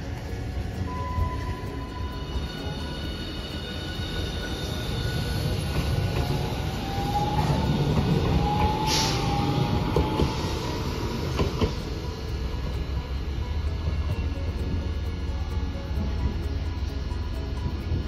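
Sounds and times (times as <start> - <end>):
high motor whine: 0.0 - 18.0
tram rumbling past: 0.0 - 18.0
burst of hiss: 8.8 - 9.4.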